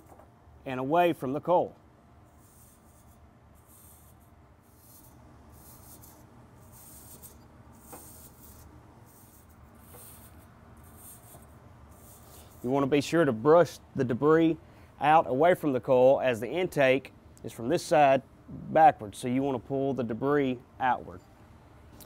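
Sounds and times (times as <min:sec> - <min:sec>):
brush scrubbing metal fins: 0:02.3 - 0:12.9.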